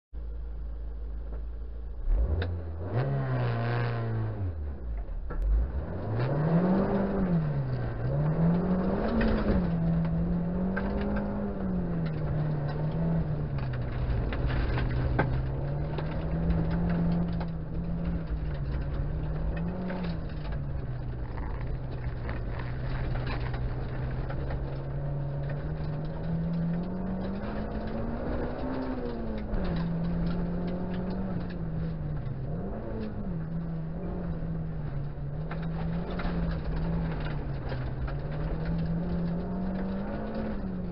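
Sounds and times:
car engine revving: 1.9s - 40.9s
small clicks and ticks: 6.8s - 40.9s
tyres on wet gravel: 12.1s - 32.8s.

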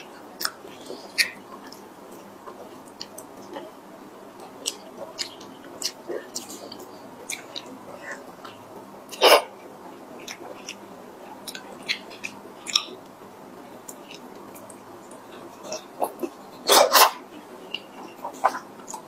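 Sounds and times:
wet chewing: 0.3s - 3.7s, 4.4s - 9.4s, 10.2s - 13.0s.

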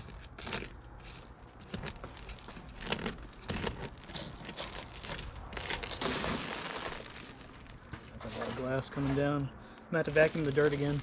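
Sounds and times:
windshield glass crackling: 0.0s - 11.0s.

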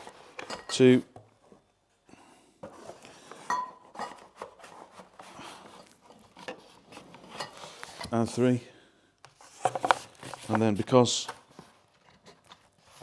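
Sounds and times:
glass clinking against glass: 3.5s - 4.2s.

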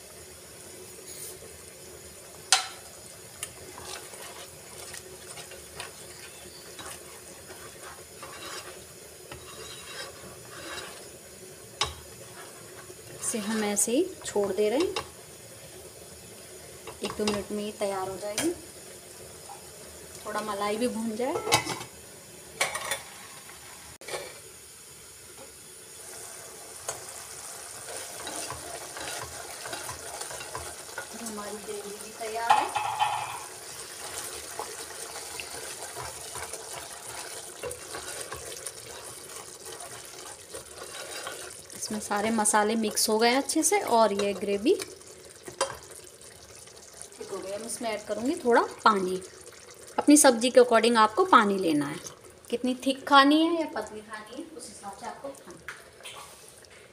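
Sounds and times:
gravy sizzling and bubbling: 0.0s - 56.9s
spoon stirring thick gravy: 3.4s - 11.1s, 27.8s - 31.2s, 34.0s - 47.2s
spoon scraping pan: 3.4s - 11.2s, 11.8s - 15.2s, 27.8s - 31.3s, 32.4s - 46.0s
metal lid clinking: 32.5s - 33.5s.

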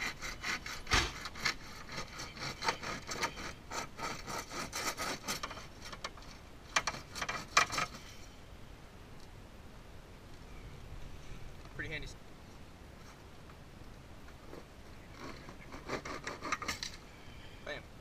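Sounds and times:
hand saw cutting plastic: 0.0s - 6.0s, 6.7s - 8.0s, 15.2s - 16.9s.

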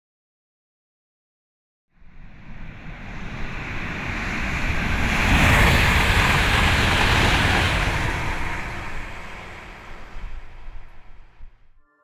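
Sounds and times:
rushing noise: 2.0s - 11.8s.

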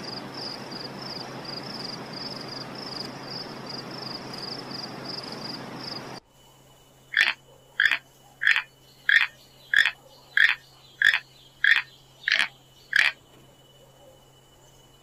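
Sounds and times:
animal rasping calls: 7.1s - 13.2s.

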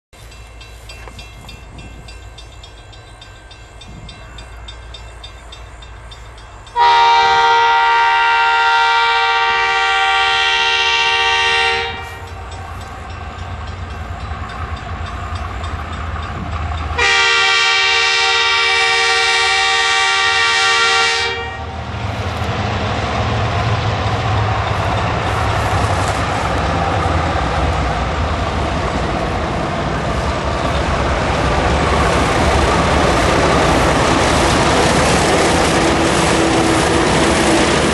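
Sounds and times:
locomotive engines: 0.2s - 8.0s, 9.4s - 37.9s
locomotive horn blasts: 6.7s - 12.4s, 17.0s - 21.8s.

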